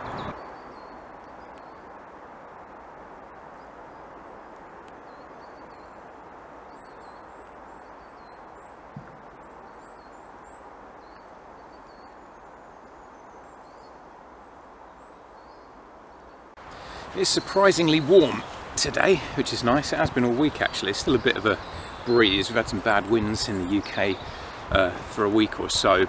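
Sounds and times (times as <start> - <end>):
birds chirping: 0.0 - 1.9, 3.4 - 14.2, 14.8 - 26.0
breeze through pine trees: 0.0 - 26.0
low thump: 8.9 - 9.3.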